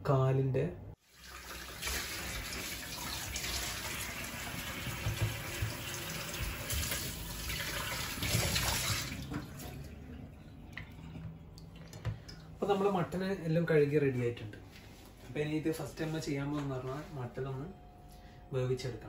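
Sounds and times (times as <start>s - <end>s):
tap water running into sink: 1.0s - 10.1s.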